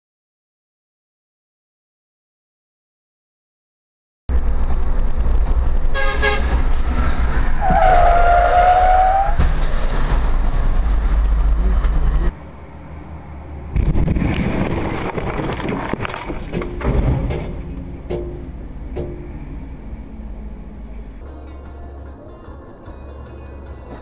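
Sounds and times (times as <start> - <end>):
engine and road rumble: 4.3 - 24.0
vehicle horn honking: 5.9 - 6.6, 7.6 - 9.4.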